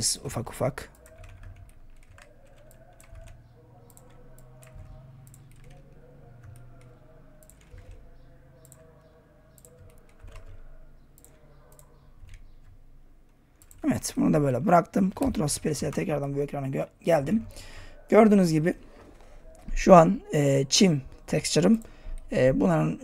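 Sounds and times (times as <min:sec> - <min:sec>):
keyboard and mouse clicks: 0:00.9 - 0:16.2.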